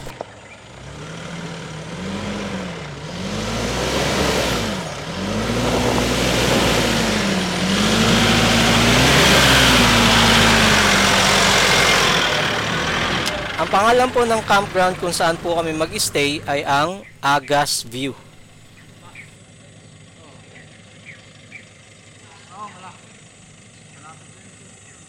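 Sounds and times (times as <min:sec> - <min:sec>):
diesel truck engine revving: 0:00.0 - 0:19.4.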